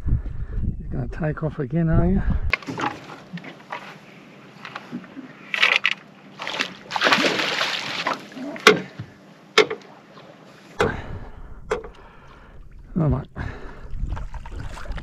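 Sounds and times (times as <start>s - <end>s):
low rumble: 0.0s - 2.6s, 10.8s - 15.0s
fish thrashing in water: 5.5s - 8.9s
sharp knocks: 9.6s - 9.8s.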